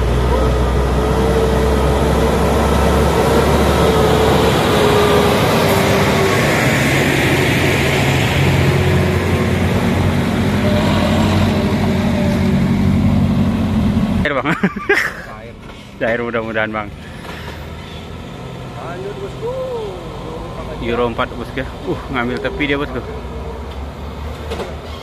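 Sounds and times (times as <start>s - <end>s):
box truck engine passing: 0.0s - 14.3s
dump truck engine: 0.0s - 25.0s.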